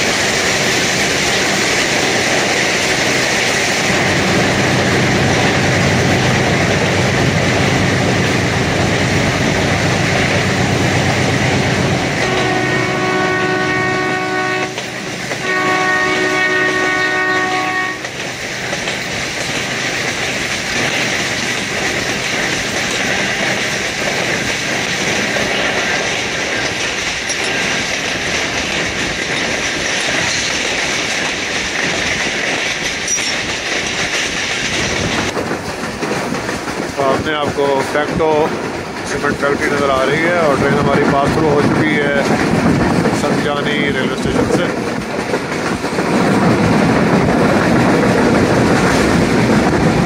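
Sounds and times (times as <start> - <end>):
train wheels rumbling on track: 0.0 - 50.0
train horn blasts: 12.2 - 18.1.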